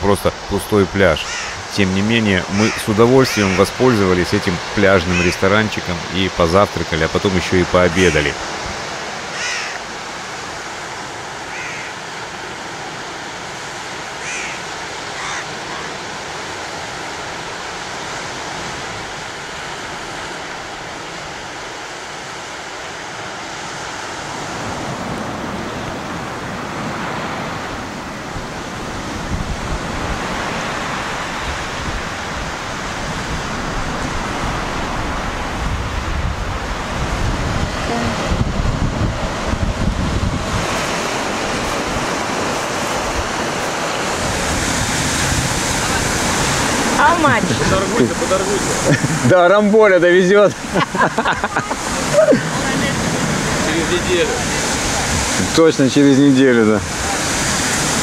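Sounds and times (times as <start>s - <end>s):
waves washing up a sandy beach: 0.0s - 58.0s
wind buffeting microphone: 23.5s - 49.3s, 51.4s - 55.7s.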